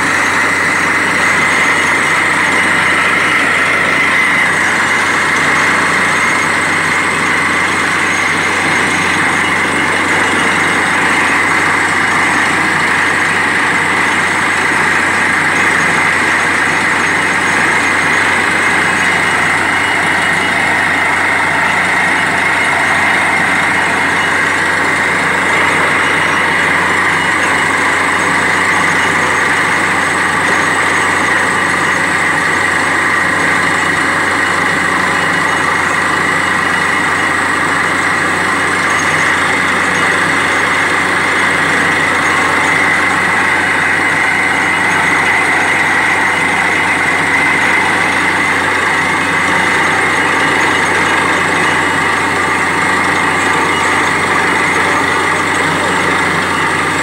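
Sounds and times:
drilling rig droning: 0:00.0 - 0:57.0.

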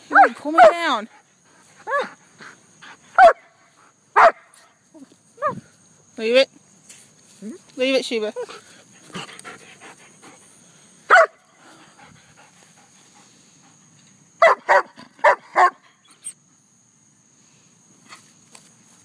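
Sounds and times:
dog barking: 0:00.1 - 0:00.9, 0:03.2 - 0:03.6, 0:04.2 - 0:04.5, 0:11.1 - 0:11.5, 0:14.4 - 0:15.8.

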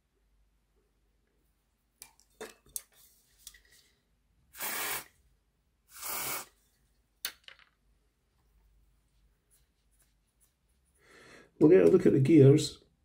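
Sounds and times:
aerosol spray blasts: 0:04.6 - 0:05.1, 0:05.9 - 0:06.6.

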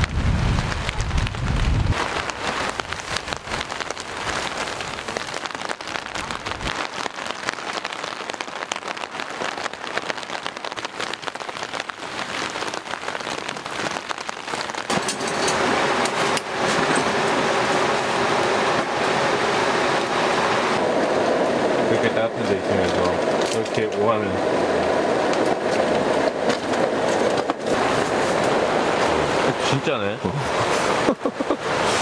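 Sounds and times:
wind buffeting microphone: 0:00.0 - 0:06.8, 0:14.8 - 0:29.7
rain pattering on tent fabric: 0:00.0 - 0:32.0.

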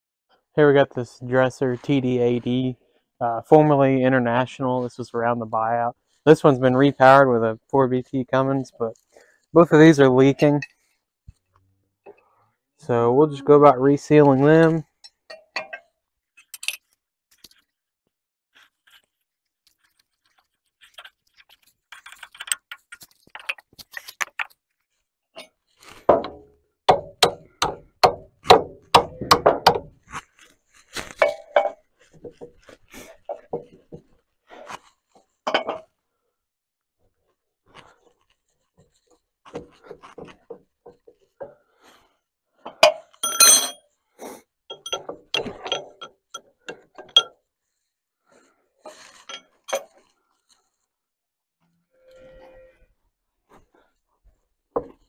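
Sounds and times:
metal tools clinking and knocking: 0:14.4 - 0:17.6, 0:31.2 - 0:32.5, 0:35.5 - 0:35.9, 0:42.7 - 0:43.8, 0:44.7 - 0:47.4, 0:48.9 - 0:50.1.

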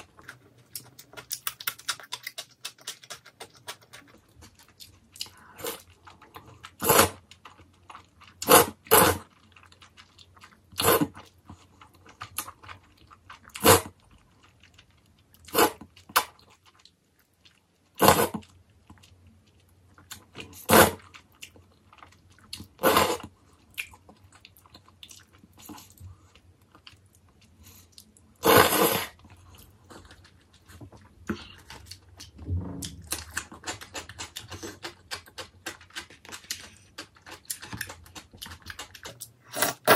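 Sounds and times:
soft chewing: 0:00.0 - 0:39.5
noodles slurped: 0:20.4 - 0:21.1, 0:22.6 - 0:23.4, 0:27.7 - 0:29.7.

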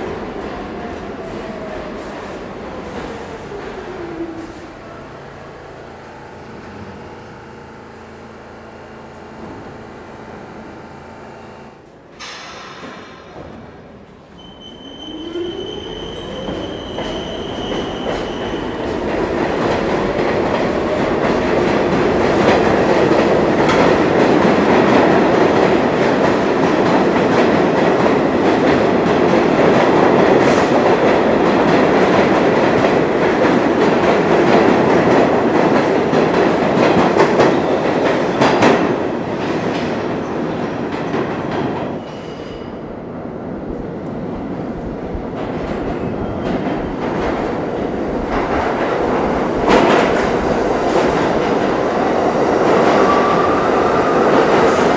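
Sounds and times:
high wheel squeal: 0:14.4 - 0:18.8.

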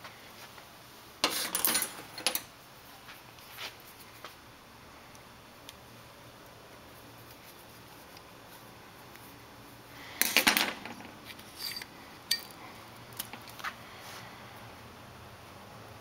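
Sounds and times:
metal parts clattering and scraping: 0:01.2 - 0:02.5, 0:10.2 - 0:12.6.

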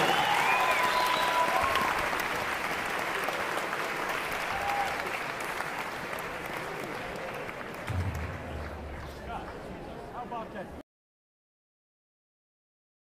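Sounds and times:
small group clapping: 0:00.0 - 0:09.8.

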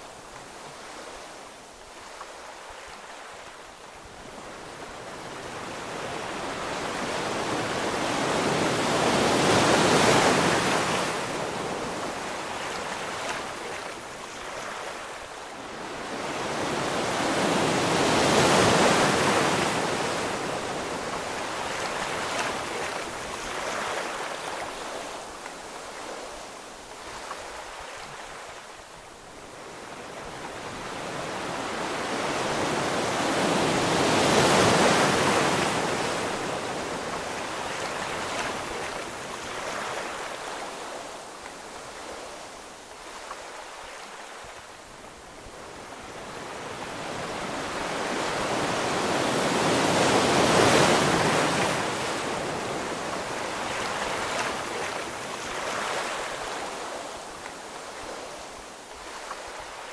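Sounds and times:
ocean waves breaking: 0:29.4 - 0:59.9.

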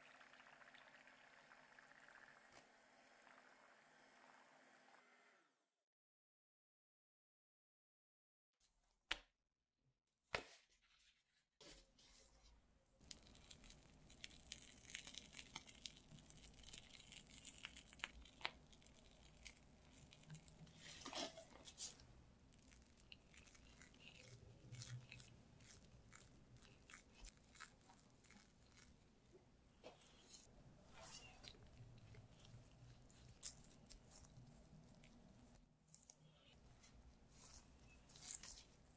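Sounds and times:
whipped cream squishing: 0:13.0 - 0:29.3, 0:30.0 - 0:38.9.

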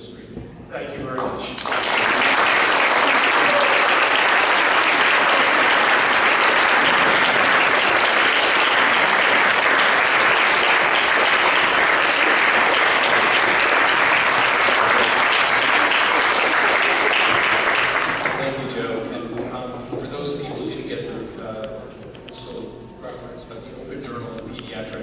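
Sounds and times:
audience applauding: 0:01.4 - 0:18.6.

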